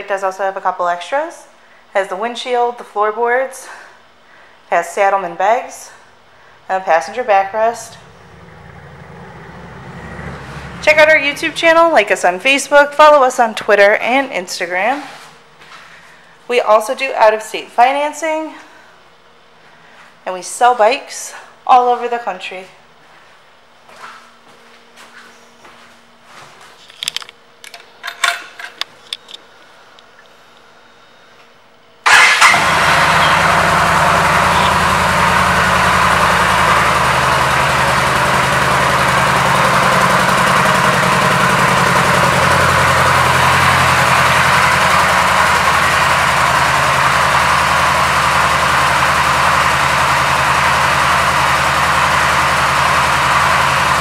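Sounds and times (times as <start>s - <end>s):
motorcycle engine starting and idling: 7.1s - 13.4s, 32.0s - 54.0s.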